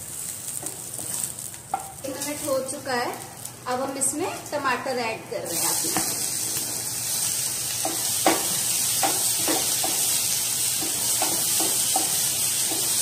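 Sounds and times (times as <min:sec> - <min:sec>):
vegetables sizzling in oil: 0:00.0 - 0:13.0
wooden spatula knocking pan: 0:07.8 - 0:10.1, 0:10.8 - 0:13.0.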